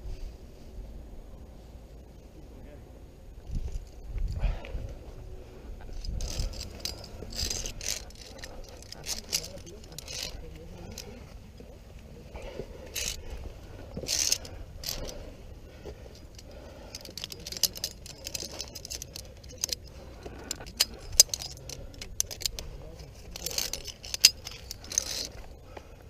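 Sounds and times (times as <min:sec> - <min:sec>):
scraping rustles: 0:03.4 - 0:26.0
carabiners clinking on cable: 0:05.8 - 0:26.0.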